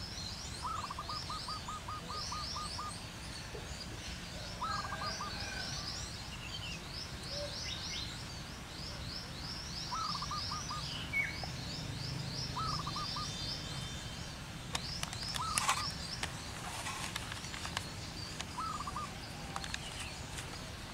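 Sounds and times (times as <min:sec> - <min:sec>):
small bird chirping: 0:00.0 - 0:20.9
dove cooing: 0:12.6 - 0:13.3, 0:18.5 - 0:20.2.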